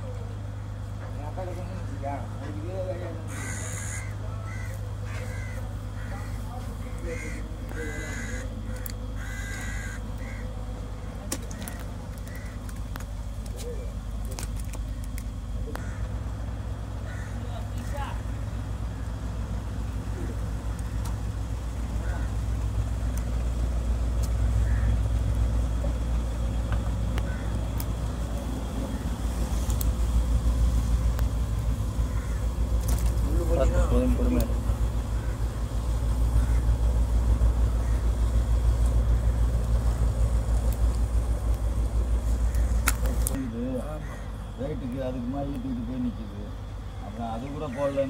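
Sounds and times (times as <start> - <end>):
low engine rumble: 0.0 - 48.0
steady low hum: 0.0 - 48.0
crows cawing: 3.1 - 10.6, 11.5 - 12.7, 15.7 - 16.3, 17.0 - 18.3, 20.2 - 21.3, 21.9 - 23.2, 24.2 - 25.3, 27.2 - 27.9, 28.7 - 29.4, 32.0 - 39.6, 42.3 - 44.6, 47.4 - 48.0.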